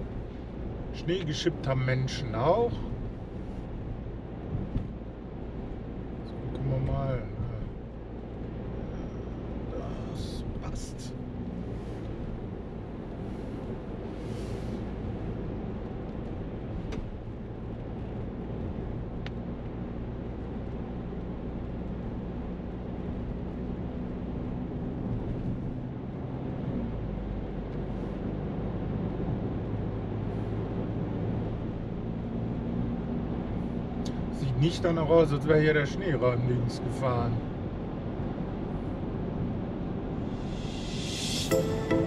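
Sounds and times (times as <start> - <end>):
tyre road noise: 0.0 - 41.5
car engine hum: 0.0 - 41.7.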